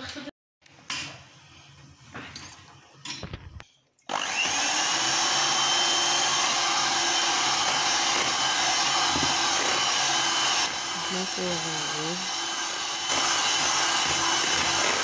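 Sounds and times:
electric hand mixer whining: 0:04.1 - 0:15.0.

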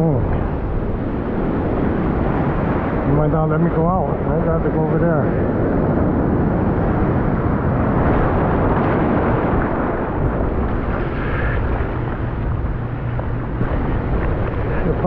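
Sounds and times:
breaking surf rushing: 0:00.0 - 0:15.0.

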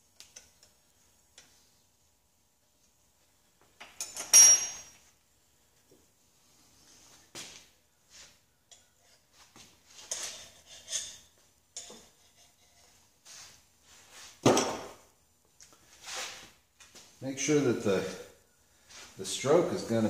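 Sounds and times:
metal tools clinking and clattering: 0:03.8 - 0:05.0.

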